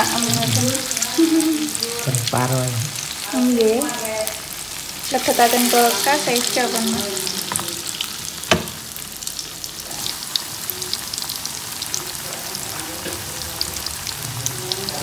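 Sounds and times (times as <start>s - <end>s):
fritters sizzling in hot oil: 0.0s - 15.0s
sharp knock: 8.5s - 8.8s.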